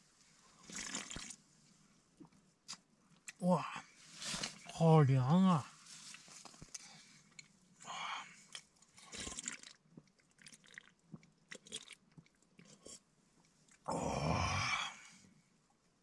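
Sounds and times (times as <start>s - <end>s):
man sipping and swallowing: 0.6s - 1.4s, 8.4s - 13.1s
breathy bursts: 13.9s - 15.2s.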